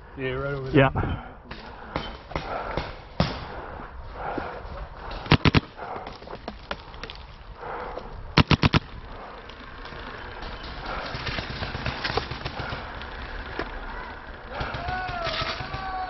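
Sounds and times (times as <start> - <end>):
paintball marker shots: 5.1 - 6.1, 8.4 - 8.8.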